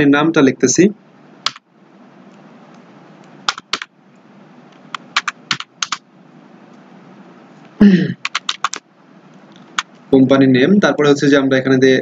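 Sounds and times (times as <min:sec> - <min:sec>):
faint steady hiss: 0:00.0 - 0:12.0
keyboard key clicks: 0:01.4 - 0:01.6, 0:03.5 - 0:03.9, 0:04.9 - 0:06.0, 0:08.2 - 0:08.8.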